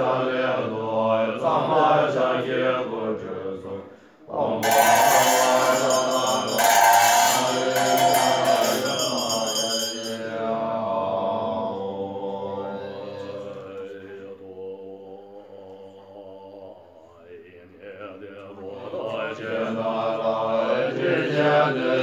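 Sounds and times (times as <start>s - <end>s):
monks chanting with held notes: 0.0s - 22.0s
bright high ringing: 4.6s - 10.6s.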